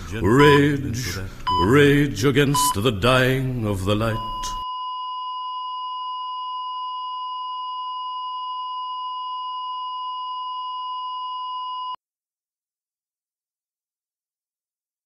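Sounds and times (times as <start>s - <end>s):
high electronic beep tone: 1.5s - 1.8s.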